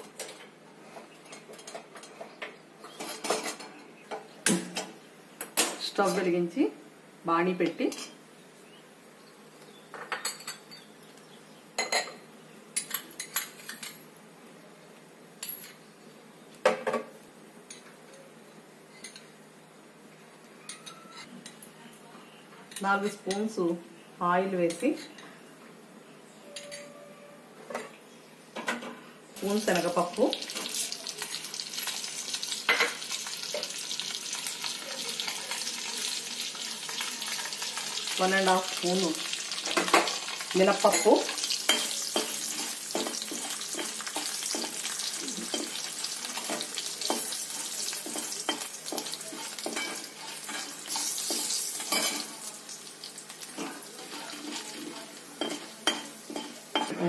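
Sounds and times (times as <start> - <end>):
spoons clinking against bowls: 26.5 - 27.0, 39.7 - 52.4, 53.5 - 56.9
lentils sizzling in hot oil: 29.4 - 56.9.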